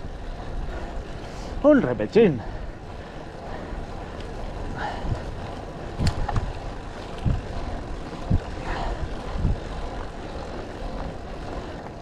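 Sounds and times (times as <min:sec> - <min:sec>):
wind on microphone: 0:03.8 - 0:12.0.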